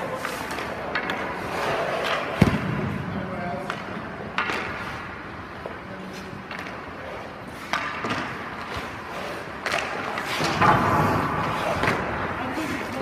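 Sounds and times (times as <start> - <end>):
skates scraping on ice: 0.0 - 13.0.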